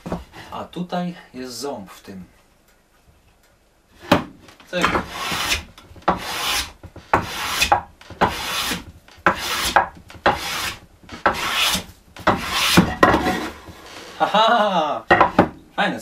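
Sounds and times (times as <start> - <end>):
hand plane shaving wood: 4.8 - 12.9.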